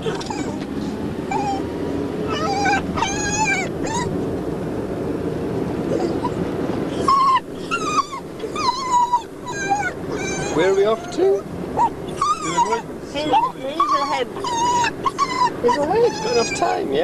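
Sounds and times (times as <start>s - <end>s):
dog whining: 0.0s - 4.2s, 5.9s - 17.0s
road noise rumble: 0.0s - 17.0s.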